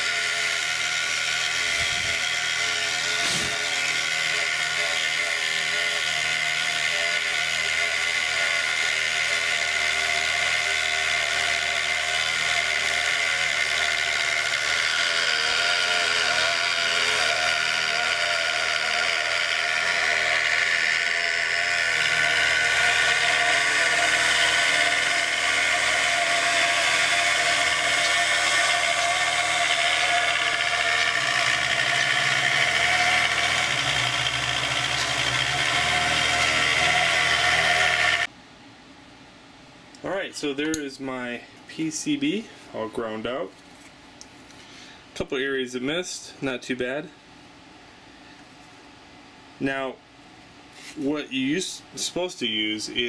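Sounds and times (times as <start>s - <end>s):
rotary tool grinding circuit board: 0.0s - 38.3s.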